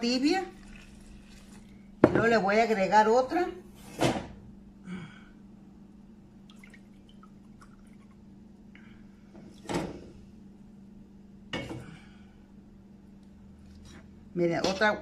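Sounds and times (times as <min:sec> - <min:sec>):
faint steady hum: 0:00.0 - 0:15.0
water pouring into a glass cup: 0:00.5 - 0:01.8, 0:06.5 - 0:08.2.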